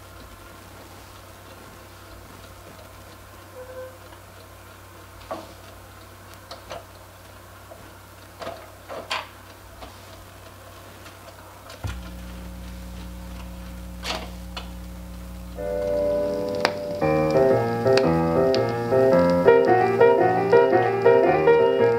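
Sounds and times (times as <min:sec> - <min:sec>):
record player hum: 0:00.0 - 0:21.9
records being handled clicks: 0:10.4 - 0:21.2.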